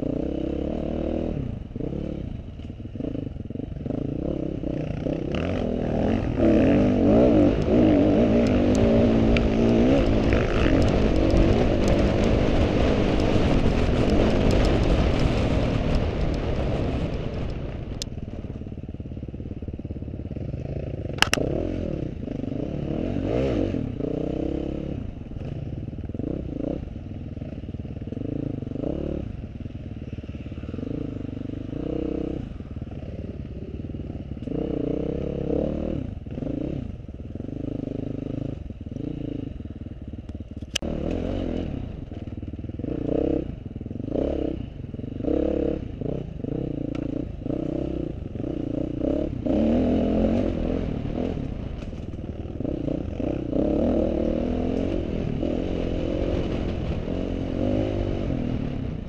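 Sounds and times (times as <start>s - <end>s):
motorcycle engine revving: 0.0s - 59.0s
sharp click: 21.1s - 21.4s.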